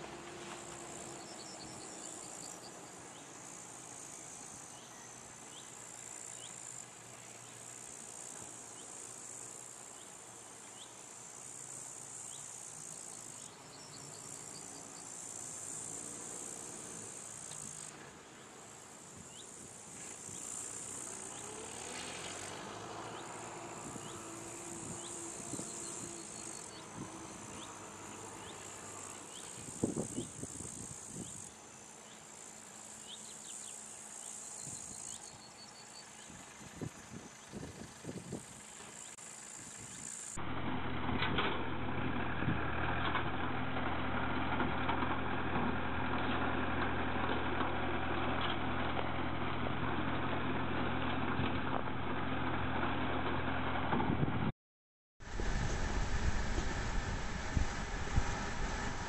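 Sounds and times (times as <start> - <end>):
distant tractor engine hum: 0.0 - 54.5, 55.2 - 59.0
insects chirping: 0.4 - 40.4.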